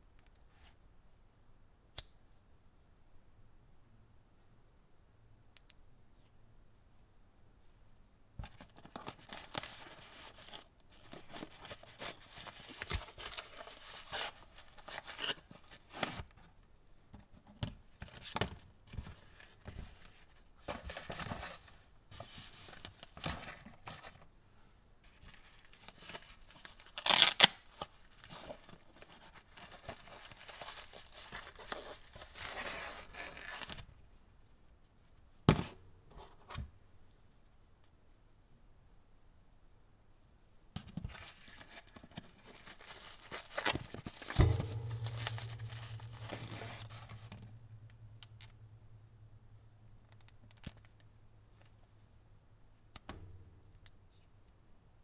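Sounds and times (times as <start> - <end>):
plastic tearing rip: 27.0 - 27.7.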